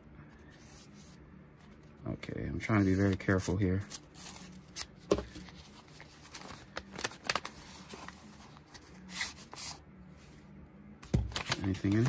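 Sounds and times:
paper envelope rustling: 2.7 - 9.8, 11.0 - 12.0.

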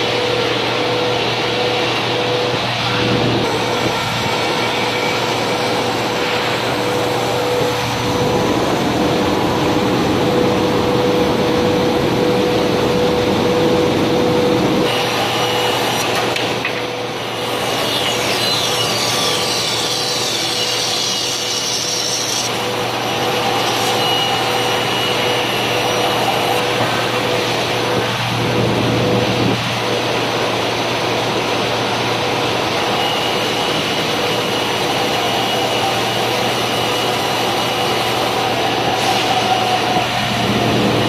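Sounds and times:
band saw cutting wood: 0.0 - 9.8, 14.8 - 28.2, 32.7 - 41.0
machine hum: 0.0 - 41.0.

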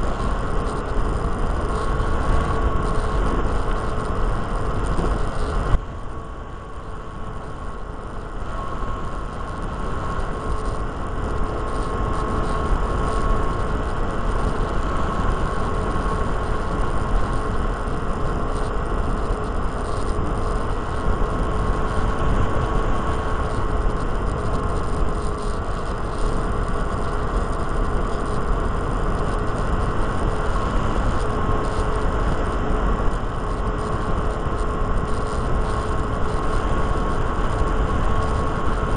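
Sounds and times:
electric motor and propeller whine: 0.0 - 38.9
wind rushing over microphone: 0.0 - 38.9.

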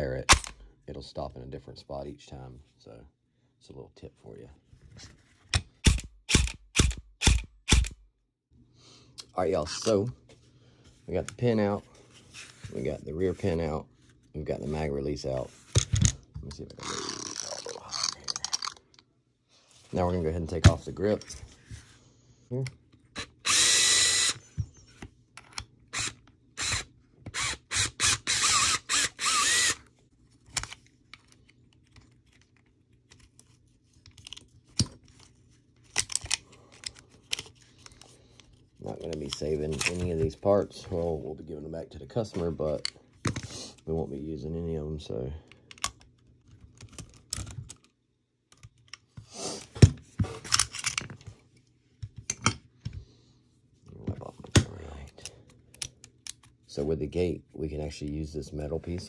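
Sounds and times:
screwdriver ratchet clicking: 23.2 - 24.4, 26.0 - 29.8
plastic and metal parts clattering: 30.4 - 40.3, 49.8 - 51.4
clicks of handling parts: 34.0 - 40.2, 45.5 - 53.0, 54.4 - 56.6.

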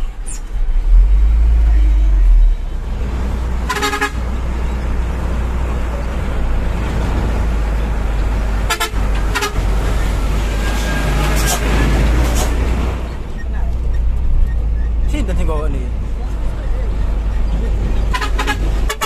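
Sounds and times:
diesel truck engine rumbling: 0.0 - 19.0
truck horn toots: 3.6 - 4.4, 8.6 - 11.6, 18.1 - 19.0.

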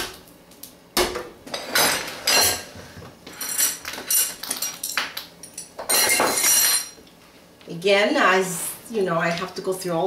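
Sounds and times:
kitchenware knocking and clinking: 5.8 - 7.0.

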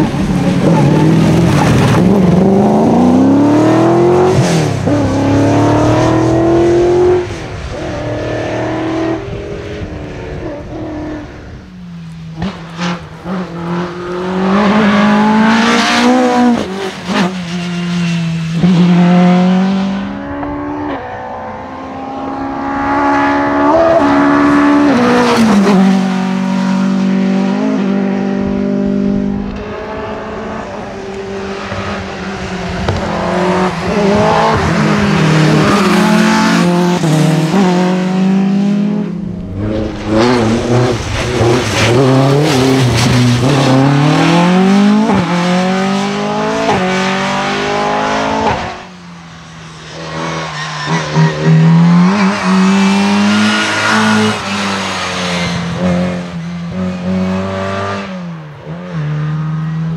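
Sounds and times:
rally car engines revving: 0.0 - 59.9.

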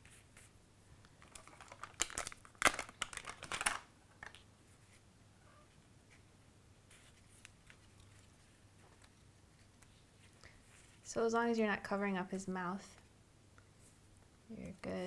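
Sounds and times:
cardstock crinkling and rustling: 1.1 - 4.4.

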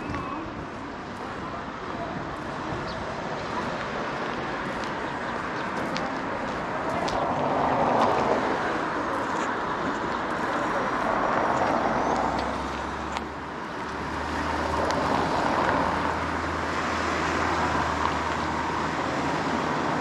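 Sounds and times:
faint voices: 0.0 - 12.8.

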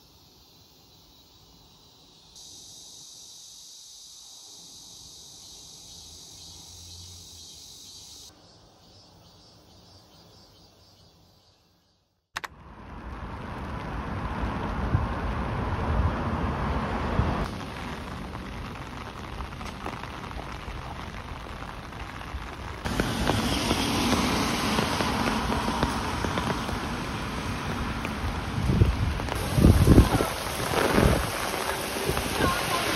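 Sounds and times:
heavy rain on a street: 12.5 - 32.9.

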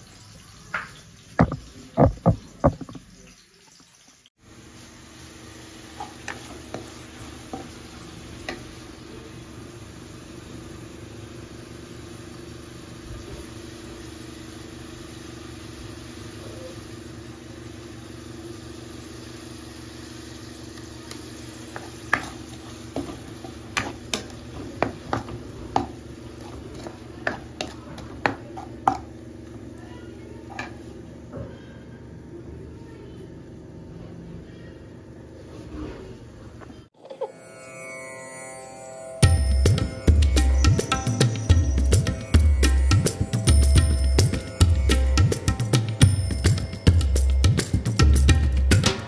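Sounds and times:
vegetables sizzling in frying pan: 0.0 - 2.6, 3.3 - 29.7.

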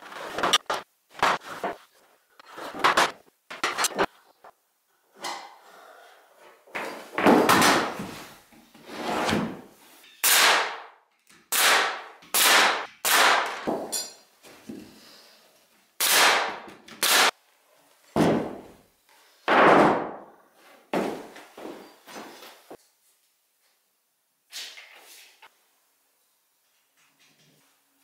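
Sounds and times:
wood knocks and clunks: 6.7 - 8.1, 18.2 - 18.7.

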